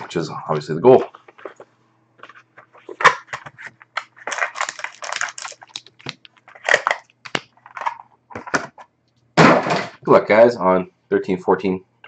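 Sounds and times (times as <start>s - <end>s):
plastic wrap crinkling: 2.2s - 8.0s
foil packs rustling: 2.8s - 7.0s.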